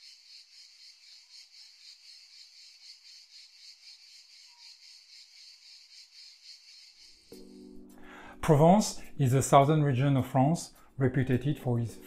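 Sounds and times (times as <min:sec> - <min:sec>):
insects chirping: 0:00.0 - 0:07.8.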